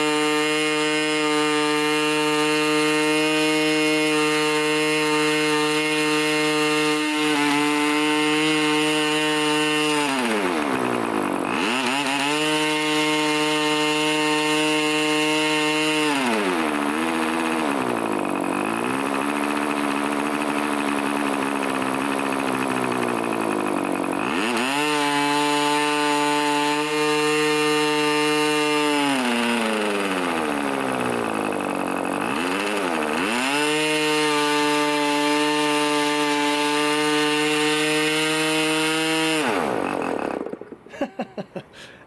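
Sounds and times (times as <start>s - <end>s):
model aircraft engine: 0.0s - 42.0s.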